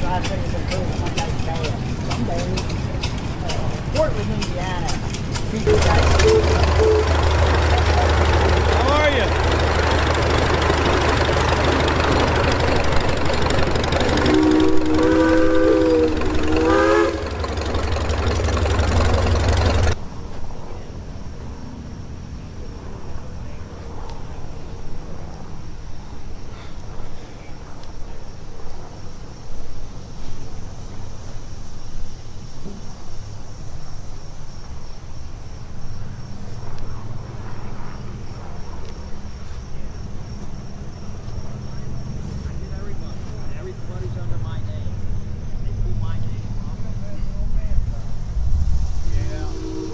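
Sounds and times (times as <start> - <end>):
engine running: 0.0 - 20.1, 36.0 - 49.9
outdoor background noise: 0.0 - 49.9
steam whistle chord: 5.7 - 7.4, 14.0 - 17.4, 49.1 - 49.9
faint high whine: 45.5 - 49.9.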